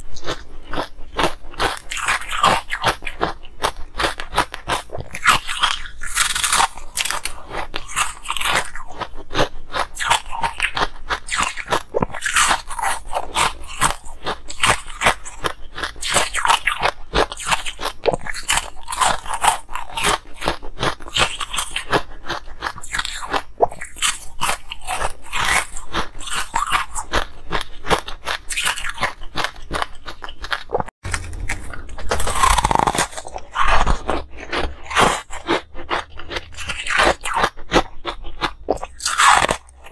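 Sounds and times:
ice crunching between teeth: 0.0 - 39.9.

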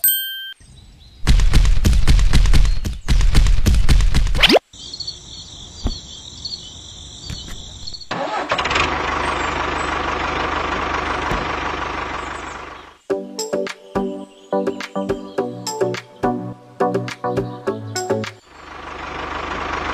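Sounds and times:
tractor engine chugging: 8.0 - 13.0, 18.5 - 19.9.

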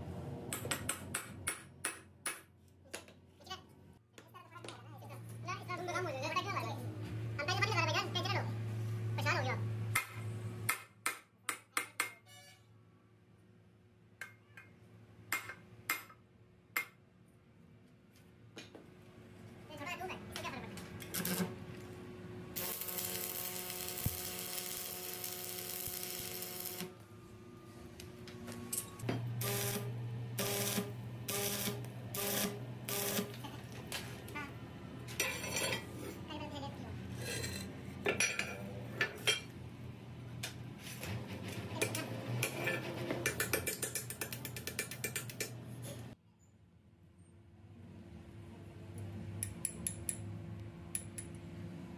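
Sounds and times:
arc welding hiss: 22.6 - 26.9
short welding bursts: 22.6 - 26.9, 29.4 - 33.3.

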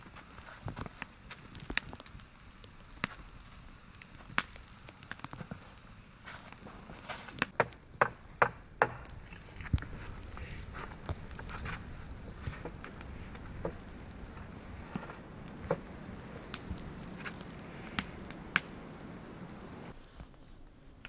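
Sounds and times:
steady low hiss: 0.0 - 21.0.

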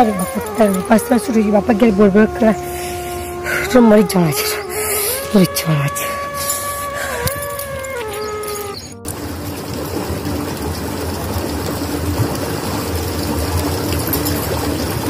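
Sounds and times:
constant low hum: 0.0 - 15.0
water gushing into trough: 9.0 - 15.0.

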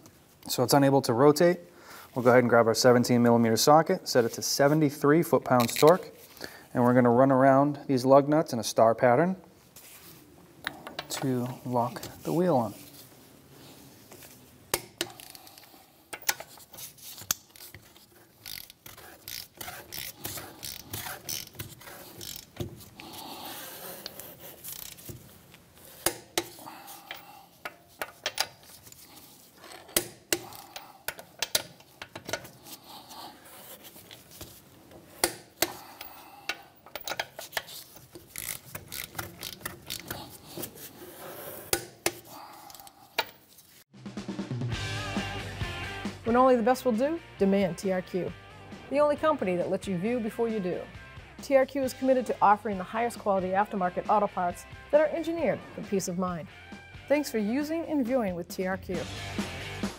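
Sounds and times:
torque wrench ratcheting: 17.3 - 22.6, 23.6 - 25.1, 38.2 - 40.3.

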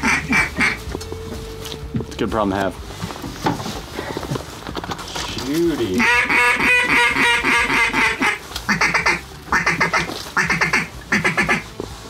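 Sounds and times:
duck call chuckling and quacks: 0.0 - 0.8, 5.9 - 11.7.

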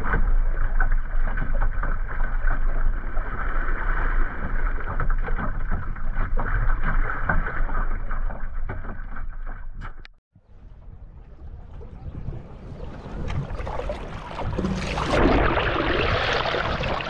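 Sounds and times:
water slapping against boat bow: 0.0 - 10.2, 11.6 - 17.0
wind rumbling on microphone: 0.0 - 17.0.

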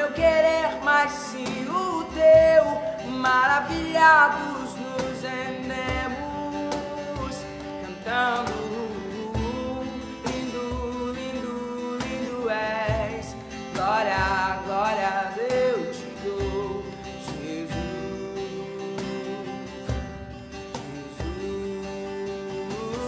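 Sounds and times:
acoustic guitar strumming: 0.0 - 23.0
cajon beats: 0.0 - 23.0
man singing wordless line: 0.0 - 23.0.

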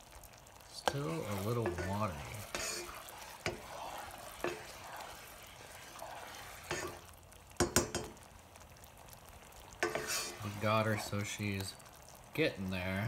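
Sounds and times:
spoon stirring simmering sauce: 0.0 - 12.4
faint steady hiss: 0.0 - 13.0
spoon scraping and knocking pan: 0.8 - 8.2, 9.8 - 11.1.

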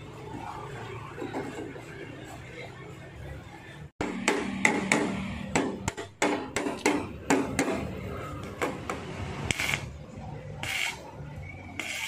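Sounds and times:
hammer striking metal: 4.0 - 7.9.

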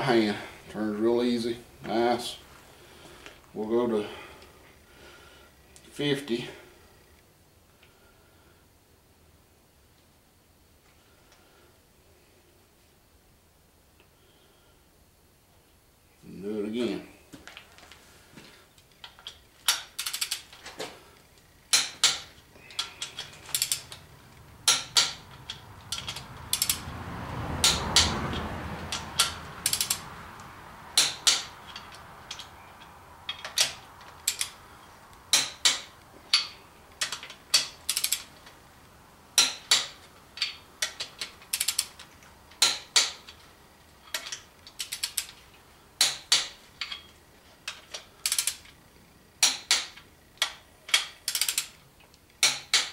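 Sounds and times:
soft low rushing noise: 20.9 - 42.6
torque wrench ratchet clicking: 23.1 - 24.0, 25.9 - 26.8, 28.9 - 30.0, 33.4 - 34.6, 35.3 - 38.3, 40.8 - 41.9, 48.2 - 48.7, 51.3 - 51.7.

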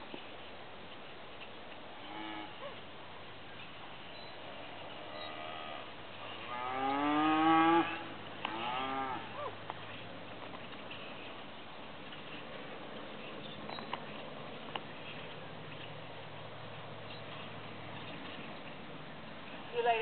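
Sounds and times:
cattle mooing: 5.0 - 9.4.

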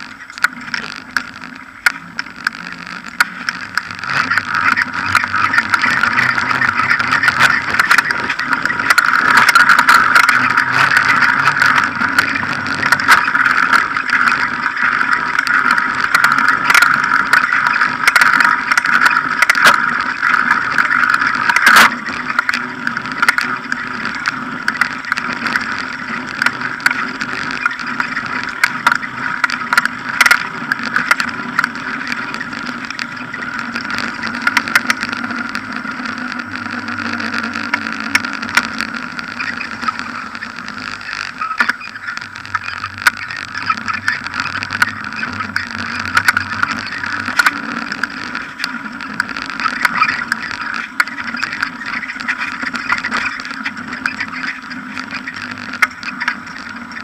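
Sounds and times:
bicycle rolling on pavement: 0.0 - 57.0.

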